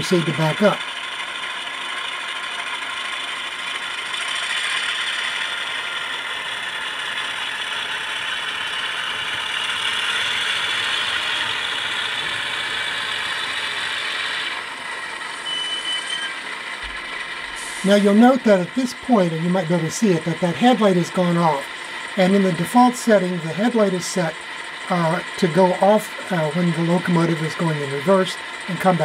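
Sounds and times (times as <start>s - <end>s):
diesel engine sound effect: 0.0s - 29.0s
model train rattling on track: 0.0s - 29.0s.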